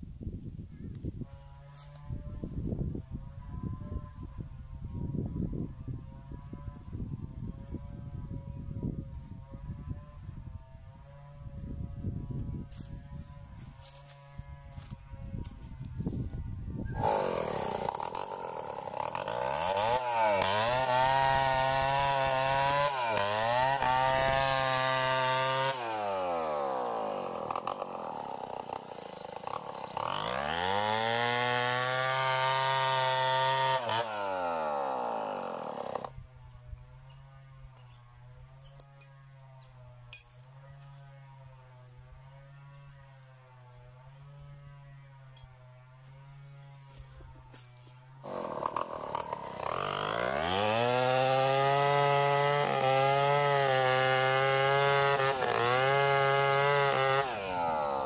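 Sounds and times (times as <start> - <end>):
chainsaw cutting wood: 1.3 - 4.2, 12.6 - 58.0
chainsaw idling: 17.0 - 36.2, 46.8 - 58.0.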